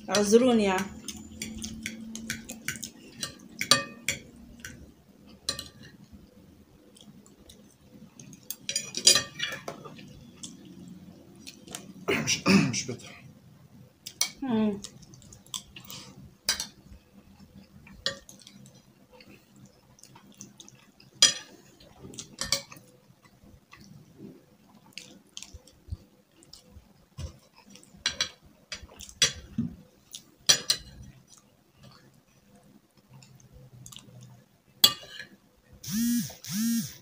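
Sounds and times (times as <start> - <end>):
quiet chewing: 6.8 - 8.7, 14.8 - 16.3, 17.3 - 34.4.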